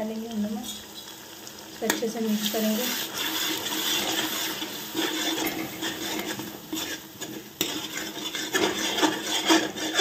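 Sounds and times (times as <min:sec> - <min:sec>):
food sizzling: 0:00.0 - 0:10.0
metal spoon scraping a pot: 0:02.8 - 0:10.0.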